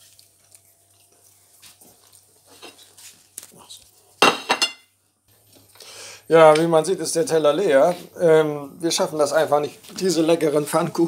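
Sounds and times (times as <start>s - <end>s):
plates knocking and scraping: 4.2s - 4.9s.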